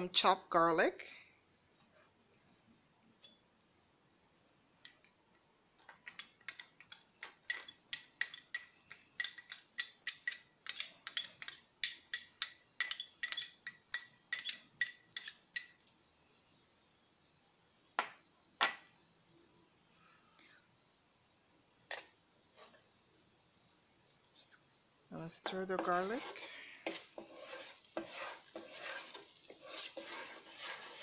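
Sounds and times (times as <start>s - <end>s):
glass bowl clinking: 21.9s - 22.1s.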